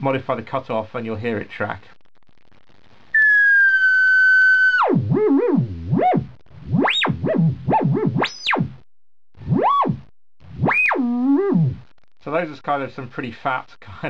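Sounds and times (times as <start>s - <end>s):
synthesizer filter tone sweeping: 4.8s - 8.8s, 9.4s - 11.9s.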